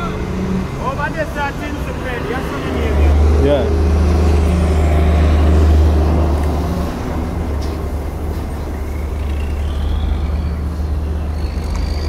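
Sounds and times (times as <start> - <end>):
road traffic passing: 0.0 - 12.0.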